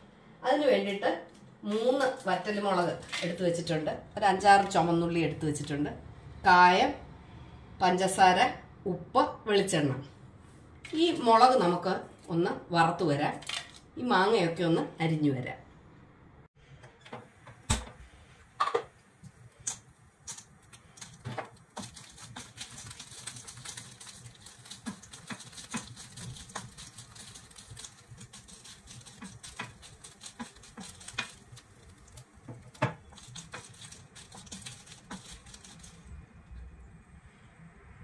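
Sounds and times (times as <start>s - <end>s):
chillies crackling hiss: 19.2s - 36.2s.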